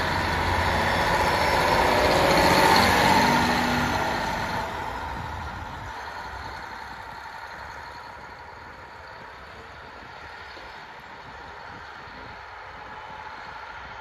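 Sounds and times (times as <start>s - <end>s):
diesel railcar engine running: 0.0s - 14.0s.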